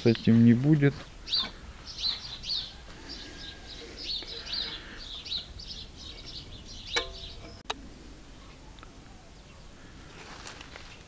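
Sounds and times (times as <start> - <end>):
small birds chirping: 0.0 - 7.7, 8.3 - 11.0
sharp metallic clink: 6.9 - 7.6.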